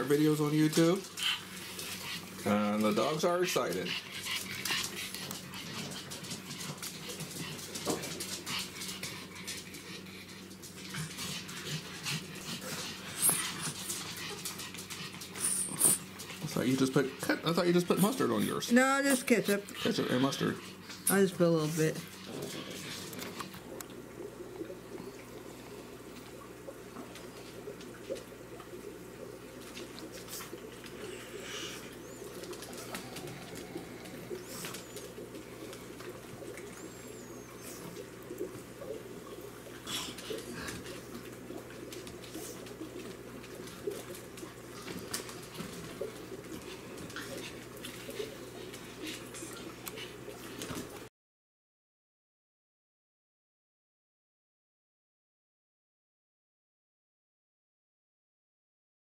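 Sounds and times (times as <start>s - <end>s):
low room hum: 0.0s - 51.1s
small dogs whimpering: 18.0s - 21.1s, 31.0s - 38.2s
wet eating sounds: 19.2s - 51.1s.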